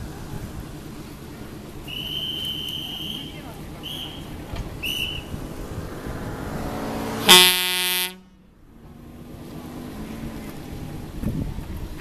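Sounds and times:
railcar horn blast: 7.2s - 8.4s.

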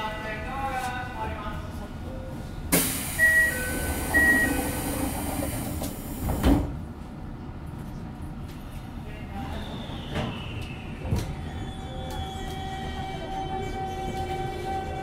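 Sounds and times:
sliding doors hissing: 2.8s - 6.7s.

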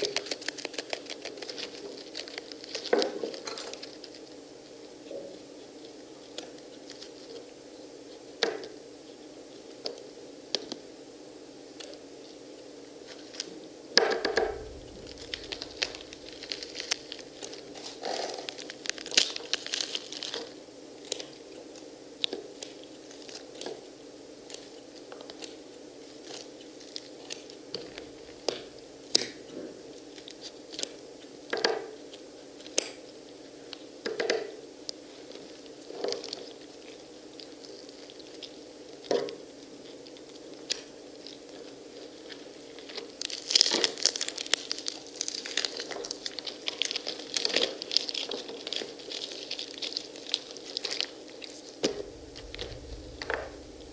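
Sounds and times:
fruit rind tearing and crunching: 0.0s - 4.4s, 14.4s - 23.8s, 35.4s - 53.9s
steady low hum: 3.7s - 22.2s, 26.8s - 29.1s, 51.3s - 53.9s.

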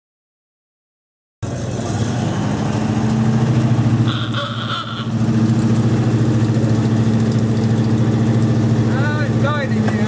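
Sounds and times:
old vehicle engine driving past: 1.4s - 10.0s.

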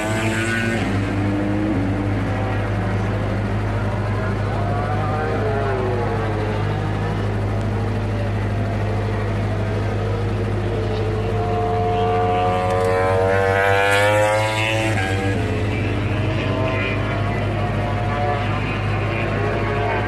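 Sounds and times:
racing motorcycle engine accelerating: 0.0s - 20.0s.

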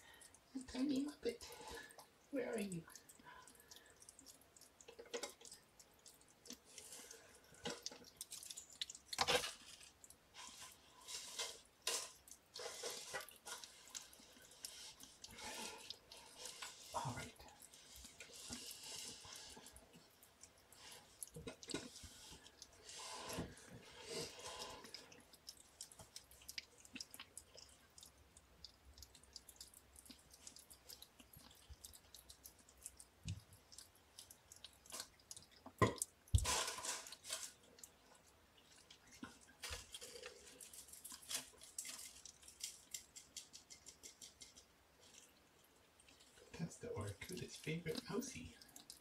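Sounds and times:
kittens rustling on paper: 0.7s - 27.8s, 36.3s - 37.9s, 38.8s - 45.4s.

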